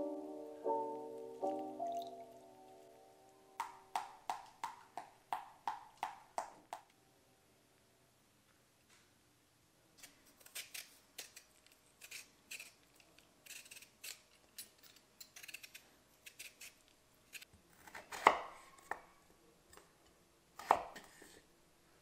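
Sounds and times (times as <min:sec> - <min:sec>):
potato peeler scraping: 0:10.0 - 0:18.3
knife chopping on wooden board: 0:17.8 - 0:19.0, 0:20.6 - 0:21.2.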